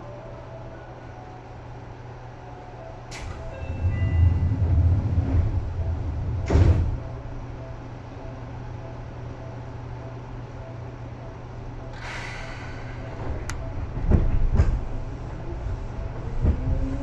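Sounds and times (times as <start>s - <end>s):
sliding doors rumbling: 3.1s - 7.2s.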